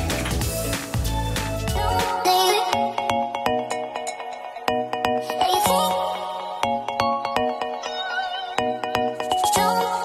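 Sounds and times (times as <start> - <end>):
deep bass: 0.0 - 2.0.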